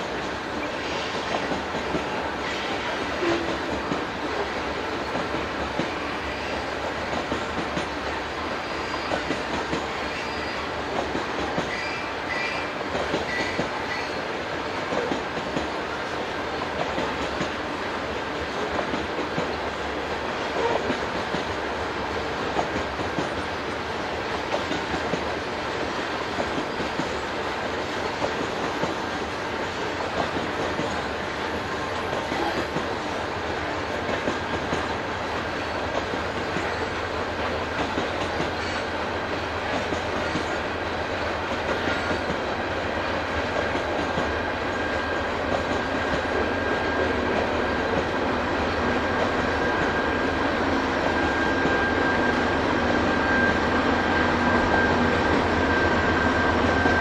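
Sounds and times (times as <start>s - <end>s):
freight train rolling past: 0.0s - 57.0s
faint high wheel squeal: 8.6s - 9.4s, 10.0s - 10.7s.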